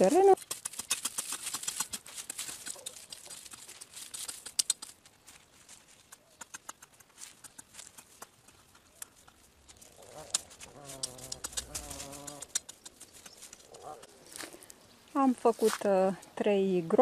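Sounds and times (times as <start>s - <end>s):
hoe chopping into dry soil: 0.4s - 2.8s.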